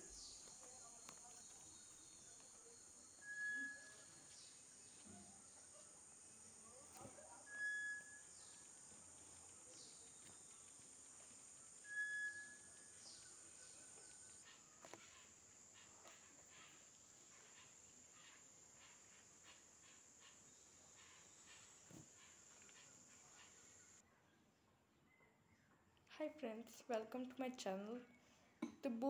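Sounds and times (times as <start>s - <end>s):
high-pitched insect drone: 0.0s - 24.0s
bird whistle: 3.2s - 4.4s, 7.4s - 8.6s, 11.8s - 13.3s.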